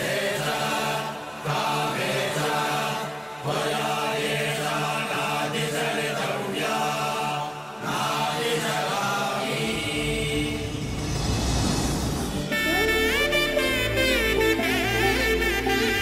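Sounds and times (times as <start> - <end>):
voices chanting: 0.0 - 11.0
steady musical drone: 9.4 - 16.0
deep low layer: 9.6 - 14.3.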